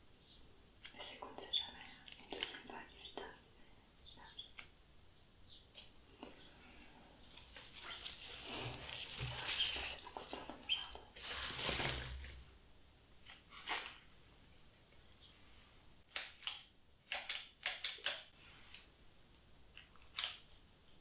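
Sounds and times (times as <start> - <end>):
dry grass rustling on newspaper: 7.2 - 12.4.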